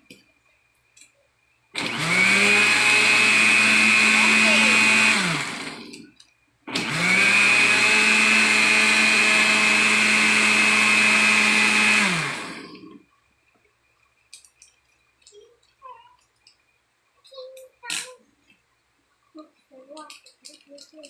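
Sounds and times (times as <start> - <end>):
electric blender motor whine: 1.8 - 6.1, 6.7 - 13.0.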